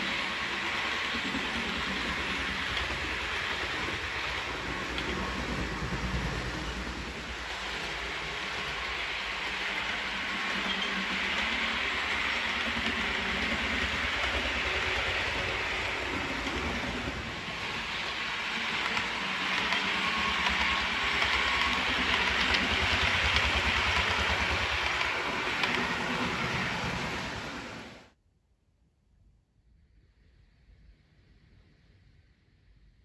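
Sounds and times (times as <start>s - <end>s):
model train whirring on track: 0.0s - 28.1s.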